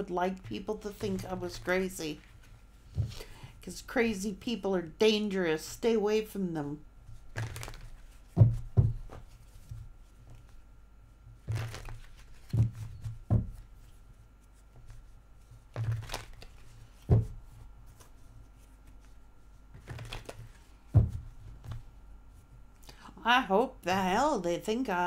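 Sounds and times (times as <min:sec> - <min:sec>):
cards being shuffled: 0:07.1 - 0:10.6, 0:11.4 - 0:21.9.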